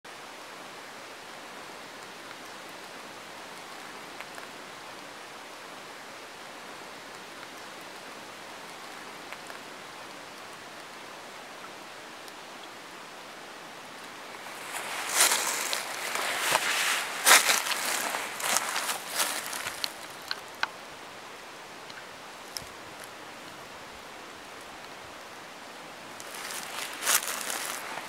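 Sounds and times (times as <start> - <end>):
steady hiss: 0.1 - 28.0
faint ticks: 19.6 - 20.8.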